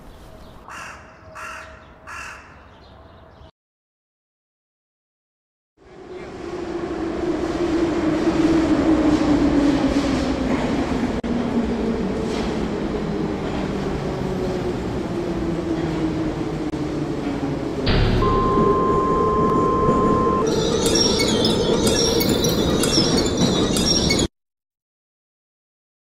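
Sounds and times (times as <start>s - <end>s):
metro train rumbling hum: 5.8s - 24.3s
train whine falling in pitch: 17.9s - 23.9s.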